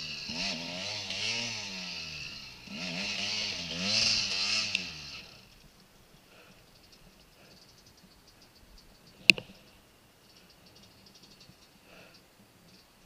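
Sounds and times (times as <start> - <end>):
faint ticking: 5.5 - 13.0.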